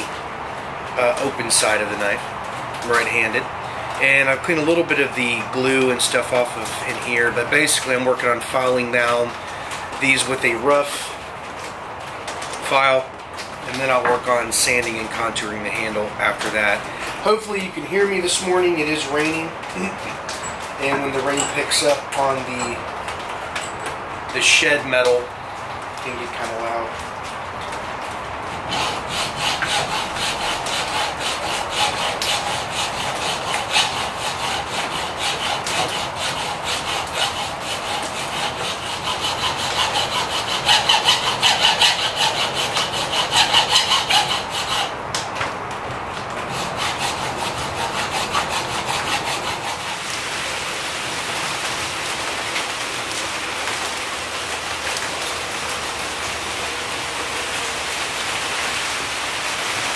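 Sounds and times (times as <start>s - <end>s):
rain on a metal roof: 0.0s - 59.9s
hand file rasping on metal: 18.1s - 22.8s, 28.6s - 45.0s, 46.5s - 50.1s.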